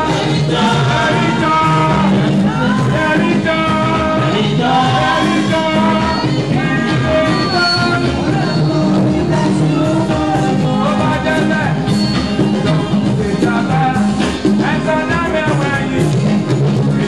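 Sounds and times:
choir singing: 0.0s - 14.9s.

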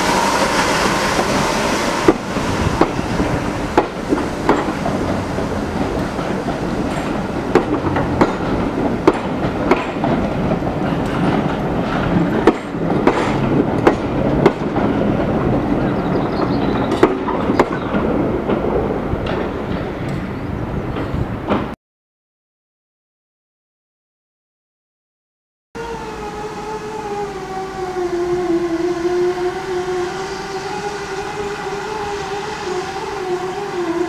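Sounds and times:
train wheels rumbling: 0.0s - 21.8s, 25.8s - 34.0s
wheels clicking over rail joints: 2.0s - 21.8s.

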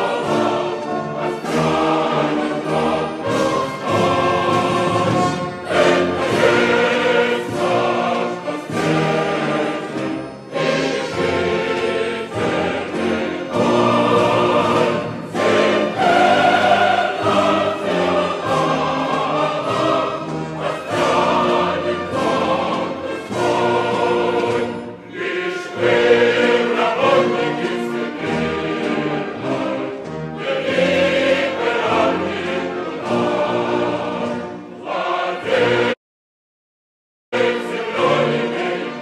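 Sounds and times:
choir singing: 0.0s - 36.0s, 37.4s - 39.0s
orchestra playing: 0.0s - 36.0s.

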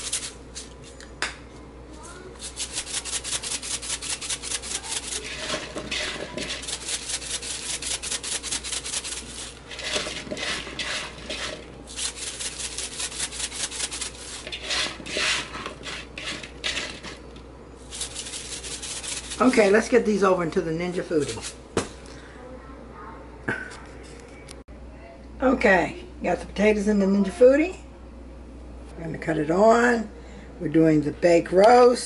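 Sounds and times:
seasoning rattling in shaker bottle: 0.0s - 0.4s, 2.4s - 17.2s, 17.9s - 19.8s.

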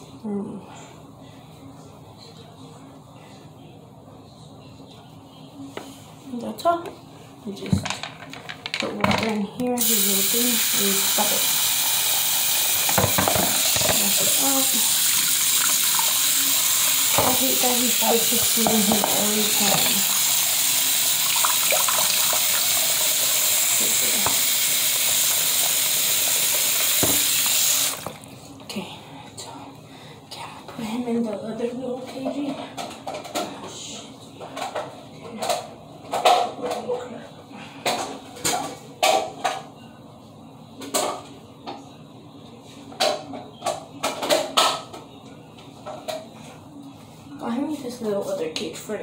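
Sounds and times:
tap running into sink: 12.7s - 14.6s, 21.2s - 28.2s.

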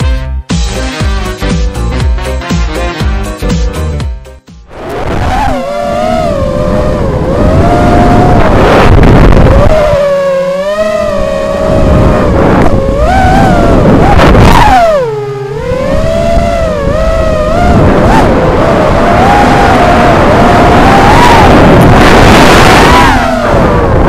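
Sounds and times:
rushing air noise: 4.7s - 10.0s, 11.2s - 24.0s
drone motors whining: 4.7s - 24.0s.

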